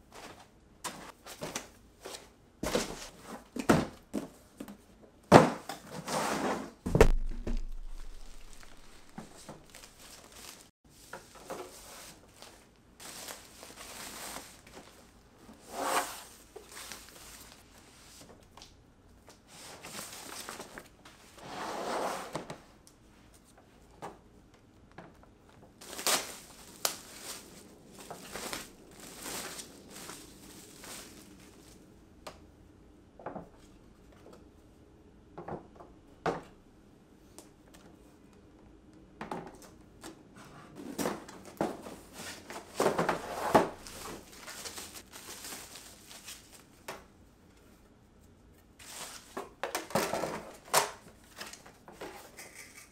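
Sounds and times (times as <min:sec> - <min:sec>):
knocks on packaging: 0:06.9 - 0:07.9
wrapping rustling and crinkling: 0:06.9 - 0:18.7, 0:19.3 - 0:21.4, 0:25.8 - 0:31.9, 0:41.1 - 0:46.9, 0:48.8 - 0:52.4.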